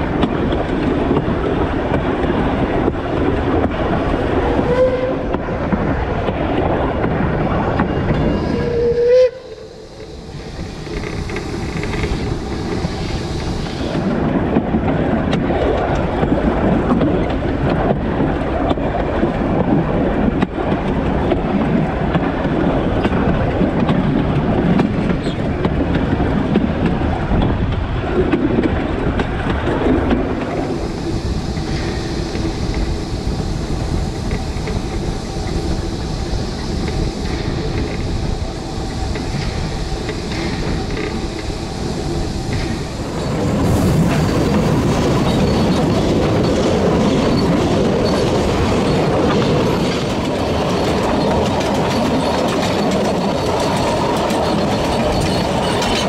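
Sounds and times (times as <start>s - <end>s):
steam locomotive running: 0.0s - 56.0s
wheels clattering on rails: 0.0s - 56.0s
steam hiss: 8.4s - 14.3s, 30.4s - 56.0s.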